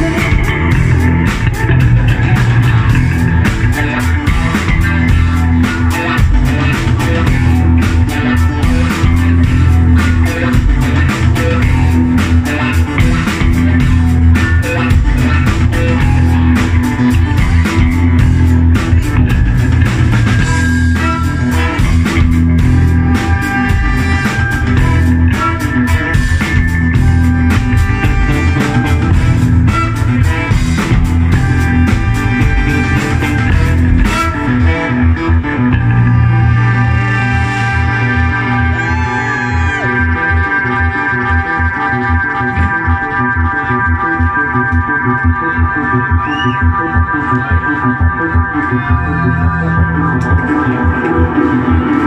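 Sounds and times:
drum kit and cymbals: 0:00.0 - 0:34.7
bass guitar: 0:00.0 - 0:52.0
flute melody: 0:20.2 - 0:52.0.

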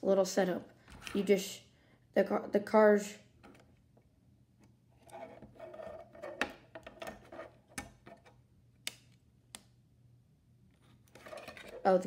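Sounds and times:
plastic case rubbing and scraping: 0:05.0 - 0:08.3, 0:11.1 - 0:11.9.

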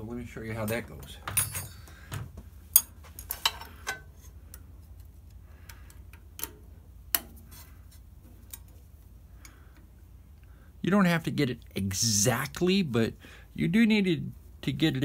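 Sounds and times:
low steady hum: 0:00.0 - 0:15.0
metal tools clicking and knocking: 0:00.6 - 0:04.7.

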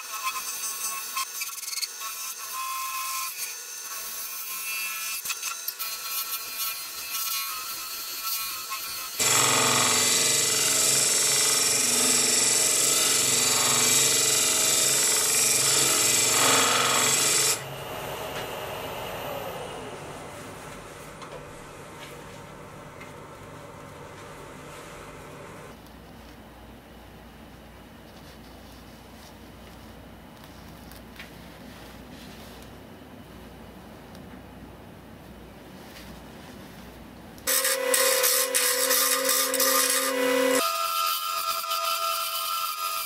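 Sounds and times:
harsh wood cutting: 0:05.2 - 0:18.6, 0:37.5 - 0:43.0
lathe tool scraping wood: 0:08.4 - 0:17.8, 0:37.5 - 0:42.4
low motor hum: 0:17.6 - 0:25.8.

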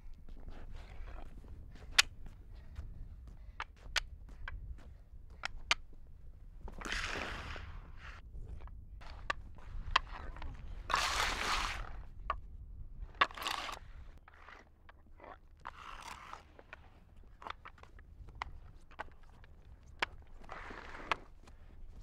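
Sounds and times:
wooden blocks clacking on asphalt: 0:00.7 - 0:06.0, 0:12.2 - 0:22.0
wooden blocks scraping on asphalt: 0:06.8 - 0:12.4, 0:13.1 - 0:22.0.

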